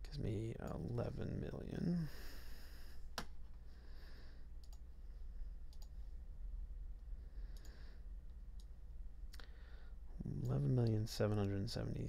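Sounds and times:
low steady hum: 0.0 - 12.0
computer mouse clicks: 4.6 - 4.9, 5.7 - 6.0, 7.5 - 7.8.

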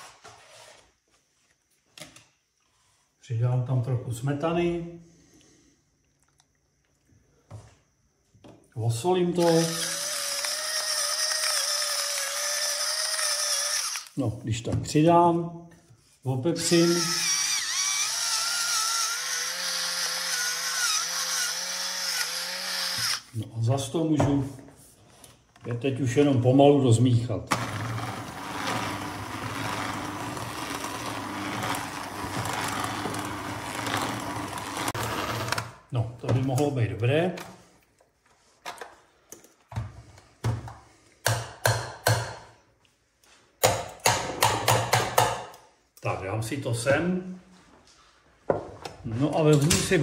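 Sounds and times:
electric pepper mill grinding: 9.4 - 14.2, 16.6 - 23.3, 27.5 - 35.8.

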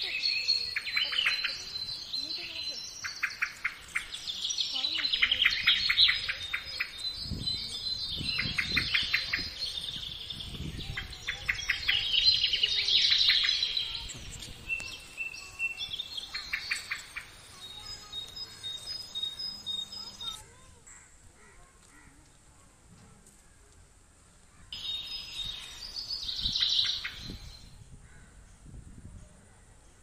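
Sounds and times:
birds calling rapid sharp notes: 0.0 - 20.6.

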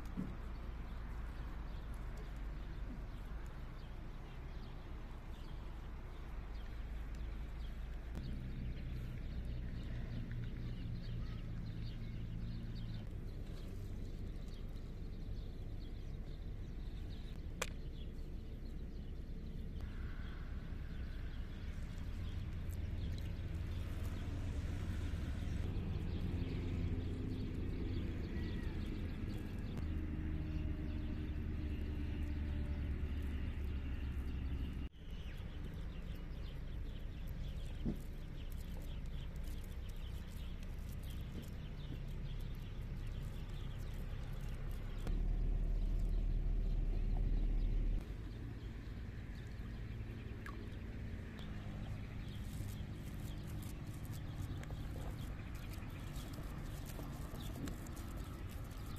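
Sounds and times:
faint ticks and rustles: 35.1 - 45.2, 50.4 - 58.9.

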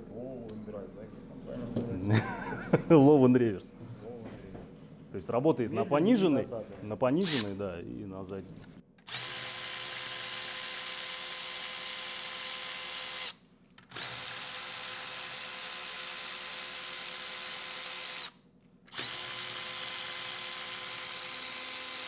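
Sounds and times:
cordless electric ratchet whine: 9.0 - 22.0.

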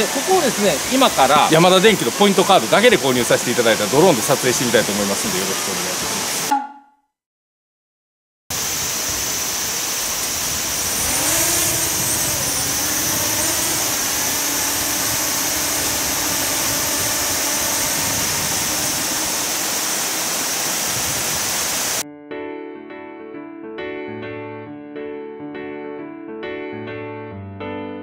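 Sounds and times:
drone propellers buzzing: 0.0 - 5.0, 8.6 - 22.0
wavering whine: 9.1 - 22.0.

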